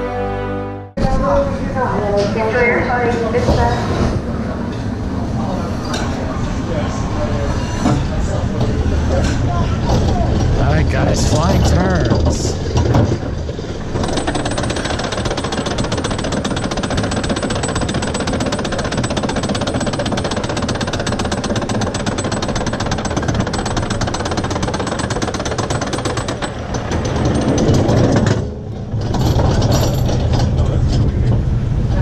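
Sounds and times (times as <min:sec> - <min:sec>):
coaster car low rumble: 0:01.0 - 0:22.1, 0:22.8 - 0:32.0
lift hill mechanical clatter: 0:07.4 - 0:32.0.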